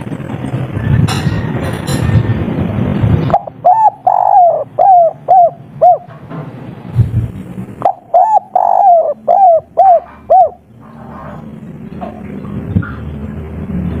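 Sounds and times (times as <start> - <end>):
dove cooing: 3.3 - 6.1, 7.8 - 11.2.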